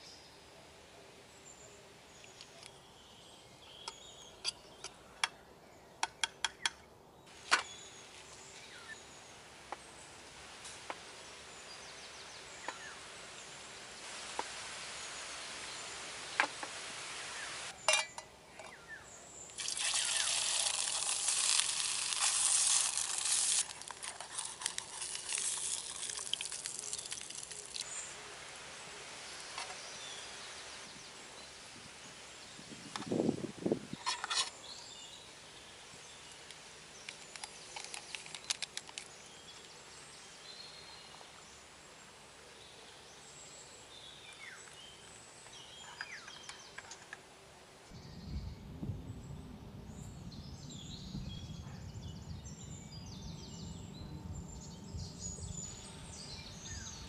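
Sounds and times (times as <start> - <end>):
steady hissing: 9.3 - 17.8, 19.4 - 30.8
metal utensils clinking on tin: 17.9 - 18.3.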